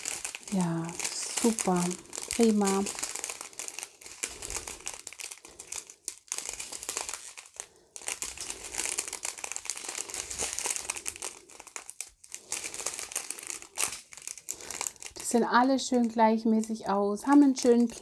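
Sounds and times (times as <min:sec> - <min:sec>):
plastic bags crinkling: 0:00.0 - 0:18.0.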